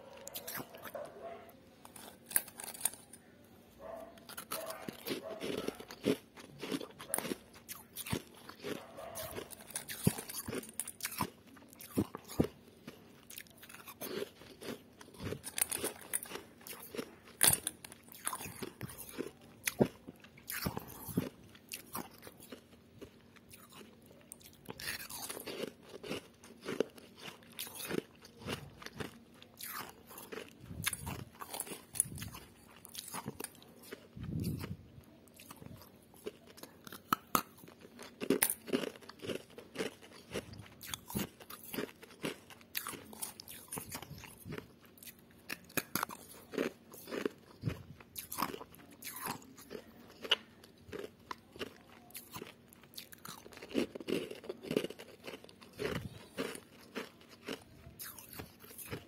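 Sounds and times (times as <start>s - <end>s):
frost being chewed crunching: 0.0s - 59.0s.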